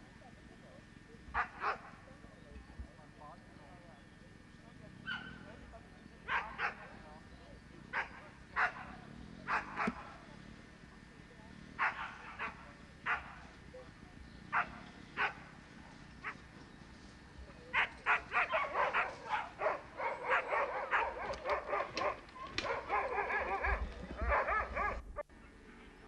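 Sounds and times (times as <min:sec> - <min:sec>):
dogs barking: 0:01.3 - 0:02.0, 0:05.0 - 0:05.6, 0:06.2 - 0:07.2, 0:07.9 - 0:10.3, 0:11.7 - 0:13.6, 0:14.5 - 0:16.6, 0:17.6 - 0:25.2.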